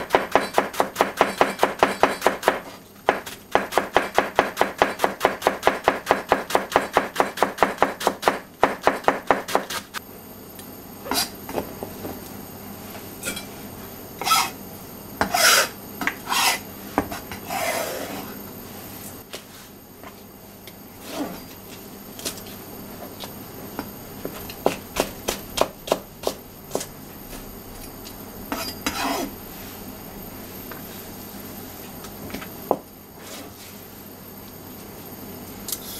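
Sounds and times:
knife scraping cutting board: 11.0 - 11.4, 14.2 - 14.6, 15.2 - 18.4, 21.0 - 21.6, 28.5 - 29.4.

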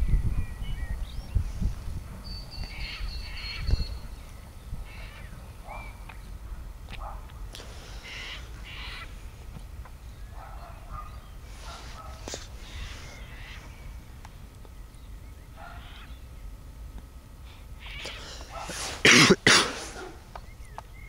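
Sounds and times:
bird cawing: 2.7 - 3.8, 4.8 - 6.3, 7.7 - 9.3, 12.5 - 14.1, 15.6 - 16.3, 17.5 - 18.6.

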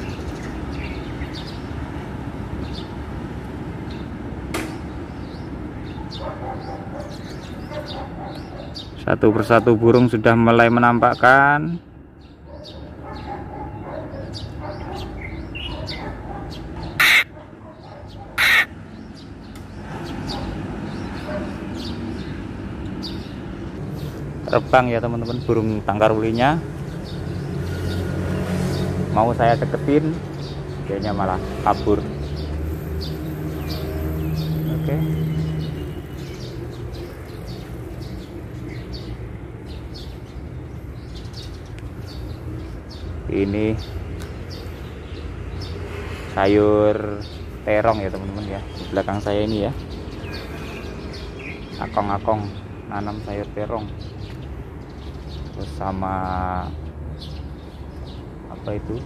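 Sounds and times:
songbird chirping: 12.2 - 59.0
bird giving harsh grating calls: 14.2 - 18.8, 50.0 - 52.0.

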